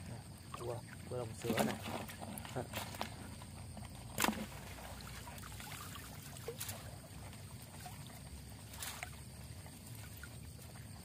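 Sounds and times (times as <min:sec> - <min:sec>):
water trickling and splashing off net: 0:04.2 - 0:11.0.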